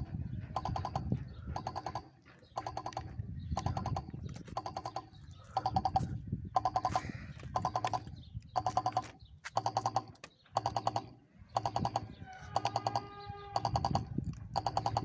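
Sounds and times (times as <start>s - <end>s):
level crossing bell ringing: 6.6s - 7.0s
distant train horn: 12.2s - 13.9s.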